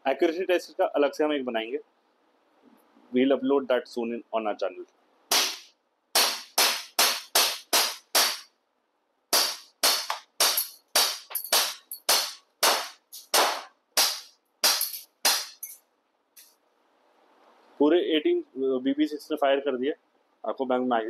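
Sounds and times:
air pistol shots cracking: 5.3s - 8.5s.

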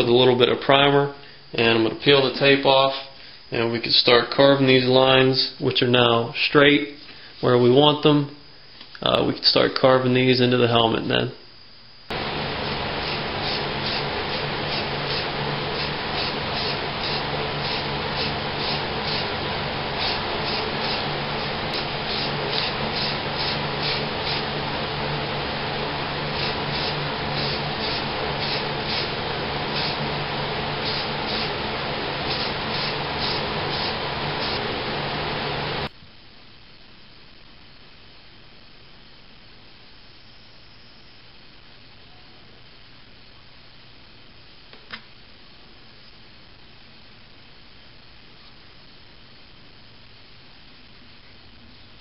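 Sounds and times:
aerosol spray can hissing: 12.1s - 35.9s.

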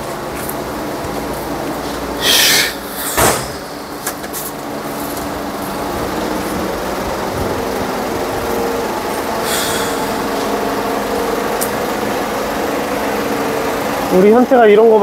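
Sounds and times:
road traffic noise: 0.0s - 15.0s
vehicle engine humming: 0.0s - 15.0s
short hiss: 2.2s - 3.8s.

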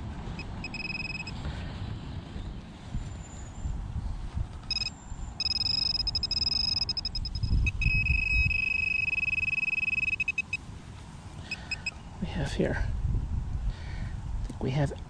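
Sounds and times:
metal detector pinpointer tone: 0.4s - 1.4s, 4.7s - 10.6s, 11.5s - 12.0s.

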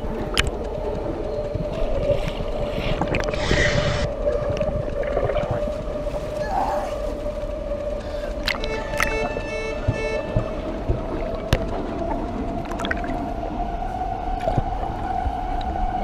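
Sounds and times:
underwater splashing: 0.0s - 7.2s, 8.0s - 13.6s, 14.3s - 16.0s
steady humming tone: 0.0s - 16.0s.

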